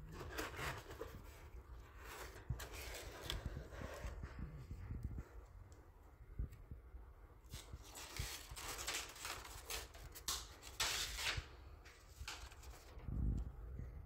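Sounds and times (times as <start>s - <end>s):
paper rustling and crinkling: 0.0s - 4.4s, 7.5s - 13.1s.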